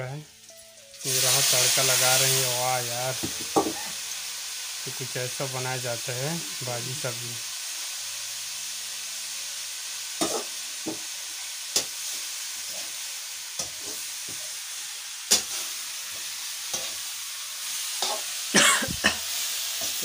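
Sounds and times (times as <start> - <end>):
greens sizzling in a pan: 0.0 - 20.0
metal ladle knocking on pan: 3.2 - 3.8.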